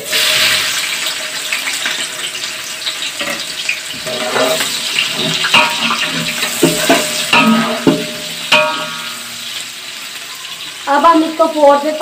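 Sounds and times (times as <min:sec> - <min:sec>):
onions sizzling in hot oil: 0:00.0 - 0:12.0
metal spatula scraping a pot: 0:03.2 - 0:09.6.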